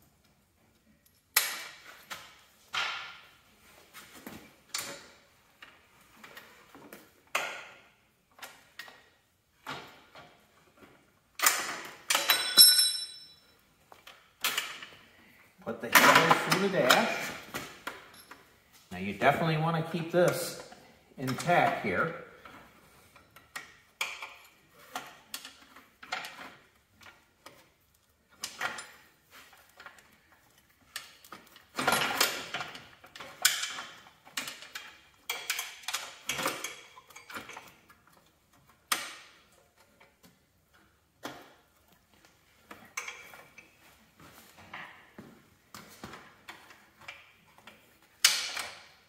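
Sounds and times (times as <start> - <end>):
metal clicks and knocks: 42.7 - 43.7.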